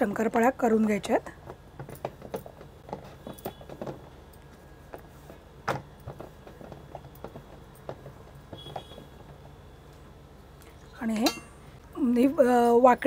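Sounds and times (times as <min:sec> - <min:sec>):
rolling pin rolling dough: 0:01.3 - 0:10.1.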